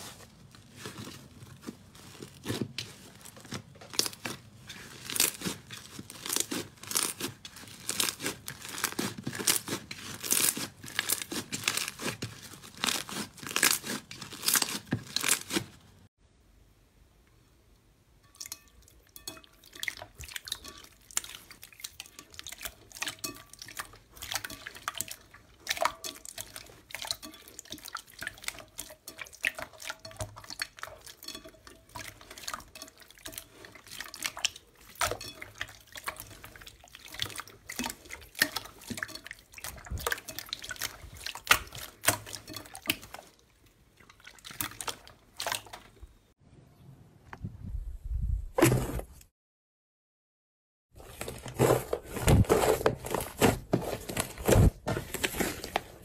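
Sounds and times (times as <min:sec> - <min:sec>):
hands squeezing sticky slime: 0:00.0 - 0:15.8, 0:19.6 - 0:46.0.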